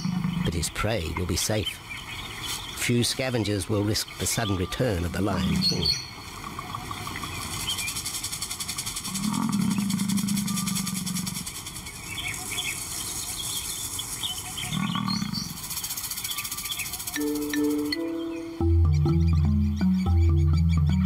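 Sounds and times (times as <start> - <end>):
lion roaring: 9.1 - 11.4, 14.7 - 15.5.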